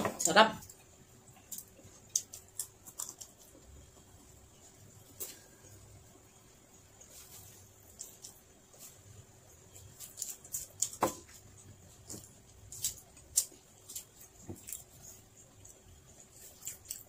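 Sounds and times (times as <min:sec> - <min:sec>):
person chewing: 0:00.6 - 0:05.7, 0:09.7 - 0:17.0.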